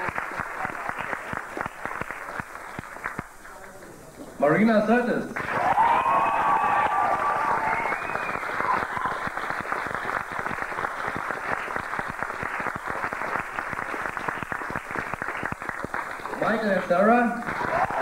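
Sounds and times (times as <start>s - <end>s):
audience clapping: 0.0s - 4.0s, 5.4s - 18.0s
person cheering: 5.5s - 9.2s.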